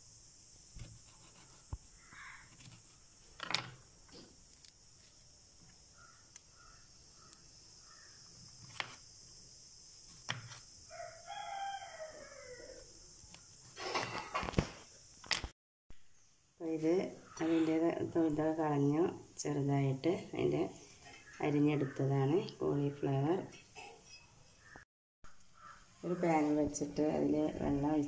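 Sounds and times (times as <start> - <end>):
rooster crowing: 10.8 - 13.0.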